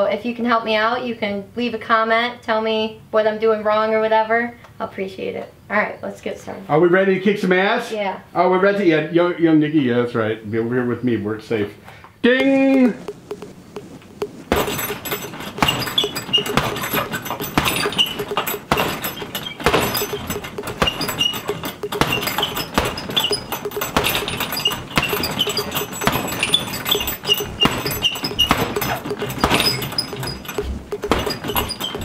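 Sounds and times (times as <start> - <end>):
chain jangling and clinking: 14.5 - 32.0
punches thudding into heavy bag: 14.5 - 32.0.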